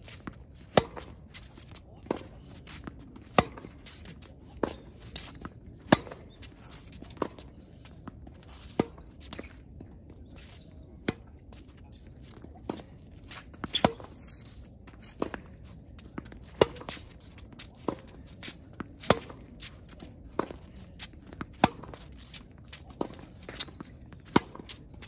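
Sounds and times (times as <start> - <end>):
tennis ball bouncing: 0.1 - 8.2, 13.5 - 15.5, 16.2 - 19.5, 20.3 - 25.0
rackets striking tennis ball: 0.5 - 1.5, 2.1 - 7.4, 13.5 - 14.2, 16.2 - 19.5, 21.2 - 22.0
shoe squeaks: 13.3 - 15.2, 16.7 - 19.3, 20.8 - 24.9.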